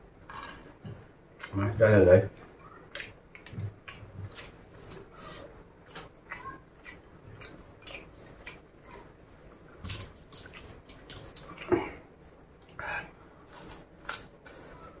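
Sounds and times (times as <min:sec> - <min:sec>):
chewing crisp clicks and smacks: 0:02.4 - 0:05.0, 0:05.8 - 0:09.1, 0:09.8 - 0:11.7.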